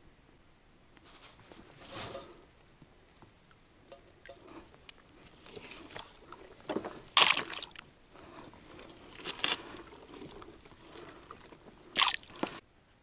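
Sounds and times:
water sloshing and splashing: 3.9s - 12.6s.

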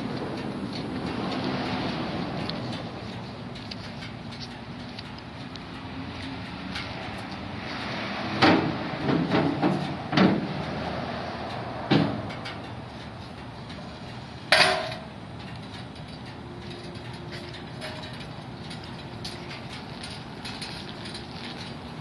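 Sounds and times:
metal hand truck knocking: 8.4s - 10.7s, 11.8s - 12.8s, 14.5s - 15.1s
ringing metal clang: 14.5s - 15.1s.

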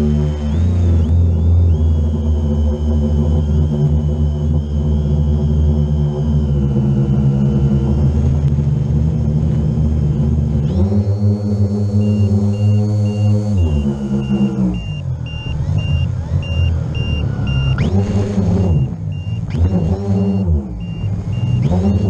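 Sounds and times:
drone propellers whining: 0.0s - 22.0s
high beeps: 10.7s - 22.0s.

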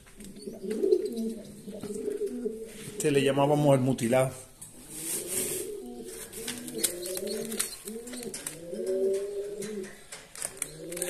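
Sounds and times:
pigeons cooing: 0.0s - 3.6s, 4.6s - 11.0s.

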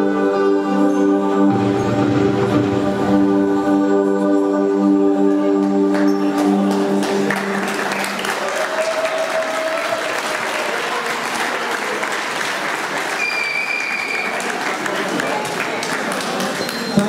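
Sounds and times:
audience applauding: 5.9s - 17.0s.

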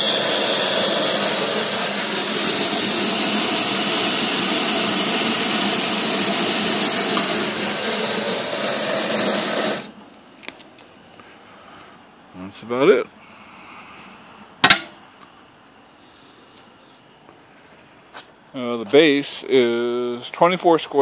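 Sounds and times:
steam jet hissing: 0.0s - 10.0s.

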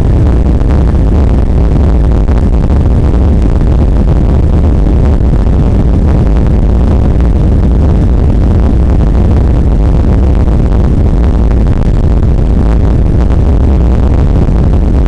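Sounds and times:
jet engines at high power: 0.0s - 15.0s
wheels rumbling on runway: 0.0s - 15.0s.

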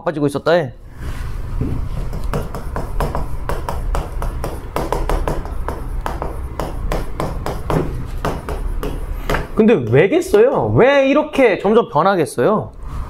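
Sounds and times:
chalk tapping on chalkboard: 1.7s - 10.8s.

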